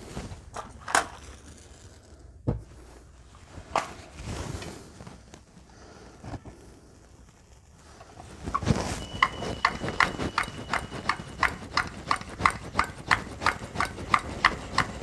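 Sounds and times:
sharp clicks and knocks: 8.1s - 15.0s.

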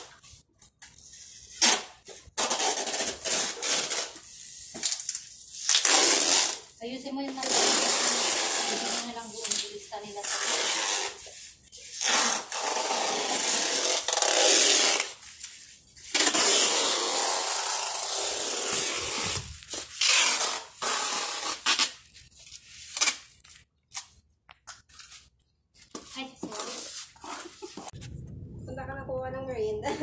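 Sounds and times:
packing tape pulled off roll: 0.8s - 6.8s, 7.4s - 24.2s
tape tearing: 0.8s - 28.0s.

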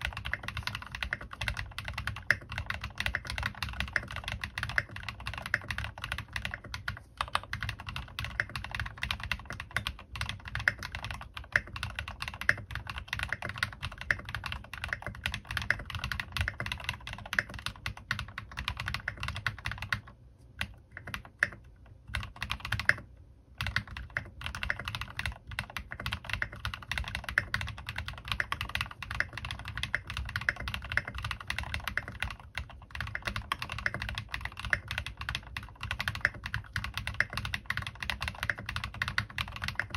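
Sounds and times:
mechanical keyboard typing: 0.0s - 39.9s.

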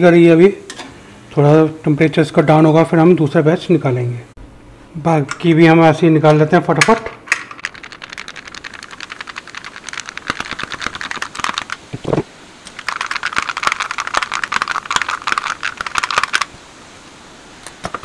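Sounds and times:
hot oil crackling and sizzling: 7.5s - 18.0s.

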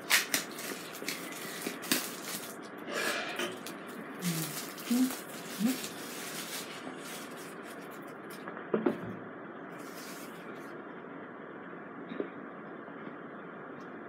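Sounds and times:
plastic shrink-wrap crinkling: 0.0s - 2.8s, 3.5s - 8.4s.

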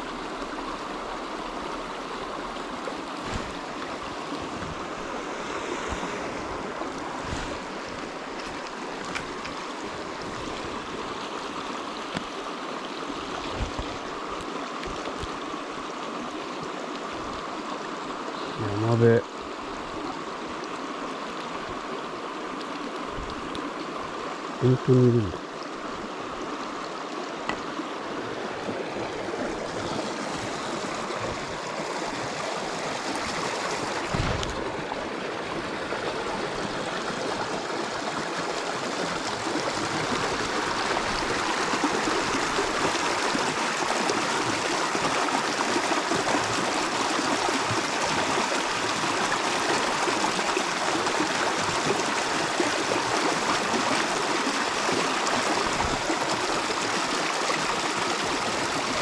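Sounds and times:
creek running over rocks: 0.0s - 59.0s
dull thump: 34.0s - 34.7s.

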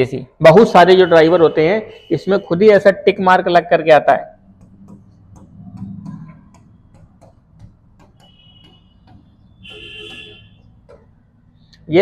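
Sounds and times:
marker squeaking on board: 4.4s - 11.6s
steady ticking: 4.4s - 11.9s.

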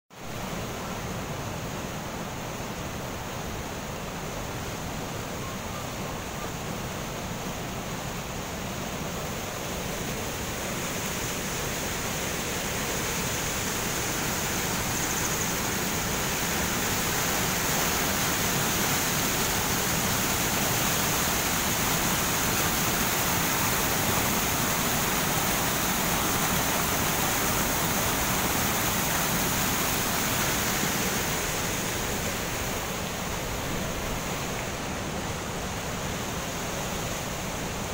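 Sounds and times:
water rushing over spillway: 0.2s - 37.9s.

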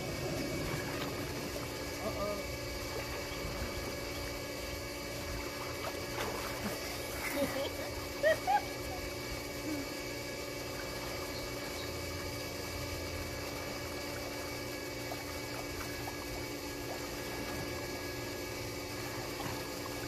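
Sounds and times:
motor humming: 0.0s - 20.0s
water splashing: 5.2s - 7.3s.

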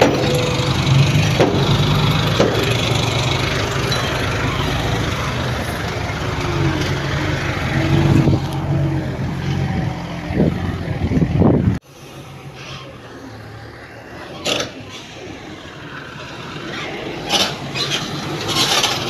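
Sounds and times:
heavy diesel engine running: 0.0s - 14.2s.

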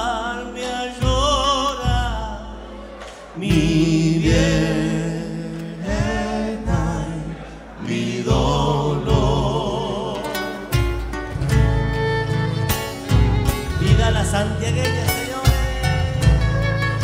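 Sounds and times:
bass drum beats: 0.0s - 2.6s, 3.4s - 9.8s, 10.7s - 17.0s
drum kit: 0.0s - 9.8s, 10.4s - 17.0s
men singing with vibrato: 0.0s - 11.0s, 13.6s - 17.0s
acoustic guitars: 0.0s - 17.0s.

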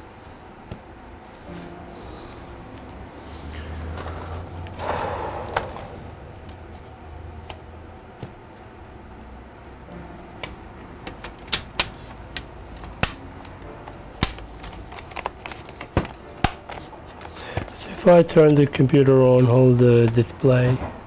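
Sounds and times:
laptop cover clicking and snapping: 10.4s - 13.3s, 14.2s - 16.9s.

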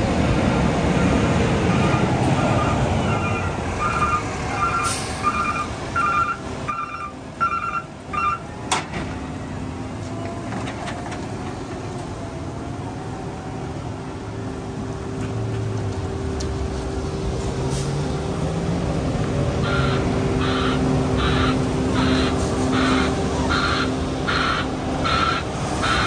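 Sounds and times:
diesel engine running: 0.0s - 26.0s
reversing alarm beeping: 2.4s - 8.4s.

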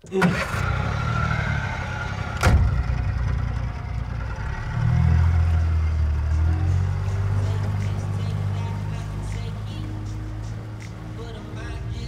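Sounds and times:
outboard motor running: 0.0s - 9.6s.

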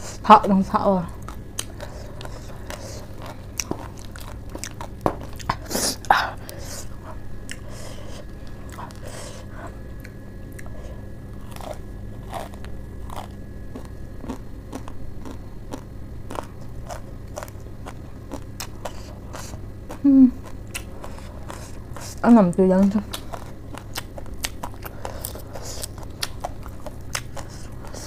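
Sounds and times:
crunchy chewing: 1.1s - 22.2s, 22.9s - 28.0s
person humming: 20.0s - 20.5s.

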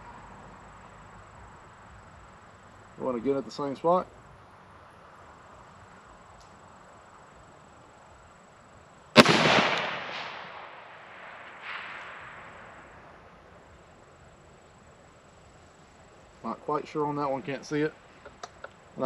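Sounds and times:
rifle shot with echo: 9.2s - 13.2s.

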